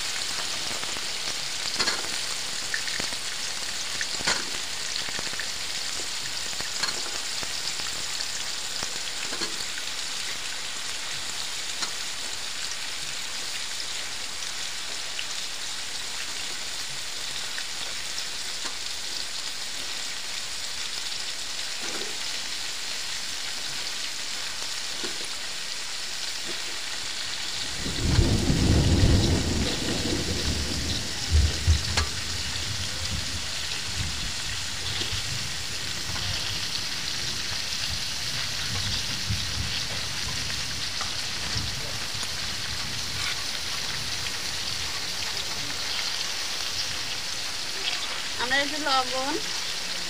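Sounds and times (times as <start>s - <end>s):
food sizzling in oil: 0.0s - 50.0s
rain falling: 0.0s - 50.0s
rumble of thunder: 27.6s - 45.5s.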